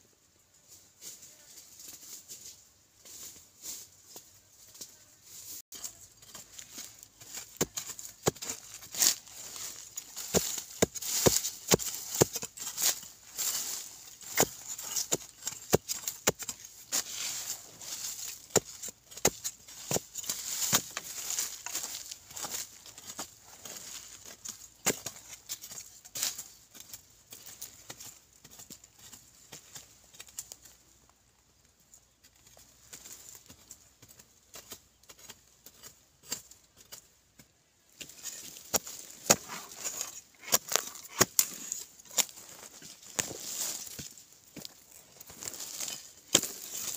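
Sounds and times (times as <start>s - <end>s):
soil scraping and crumbling: 1.7s - 46.9s
metal blade chopping into soil: 10.1s - 17.1s, 18.1s - 21.8s, 38.0s - 42.4s, 45.8s - 46.9s.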